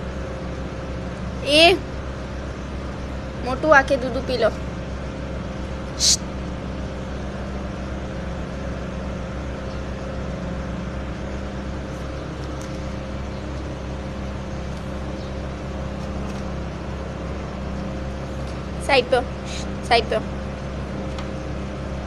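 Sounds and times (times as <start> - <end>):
low mechanical hum: 0.0 - 22.0
brief high hiss: 6.0 - 6.3.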